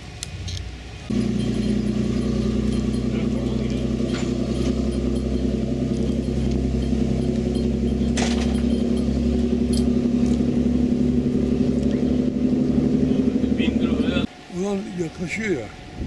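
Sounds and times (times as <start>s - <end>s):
motorboat engine running: 1.1s - 14.3s
water rushing: 1.1s - 16.0s.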